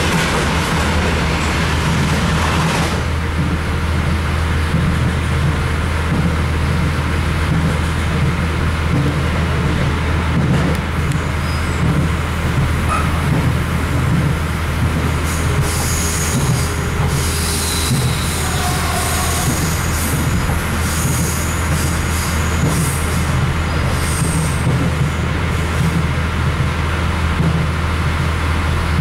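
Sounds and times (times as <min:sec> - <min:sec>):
wheels rumbling on rail: 0:00.0 - 0:29.0
high-pitched wheel squeal: 0:11.4 - 0:11.9, 0:15.6 - 0:20.0.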